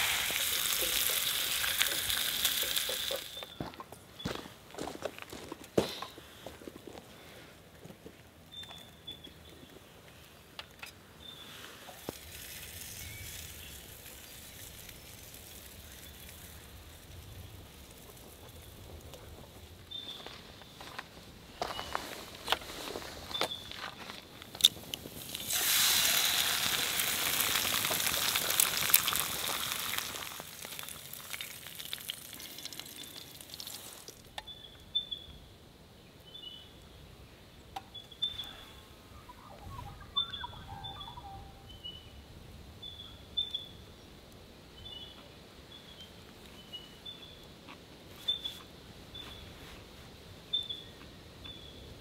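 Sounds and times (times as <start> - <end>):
egg sizzling in a pan: 0.0 - 3.6, 12.0 - 17.2, 25.1 - 34.2
birds chirping: 19.8 - 21.0, 36.3 - 42.2.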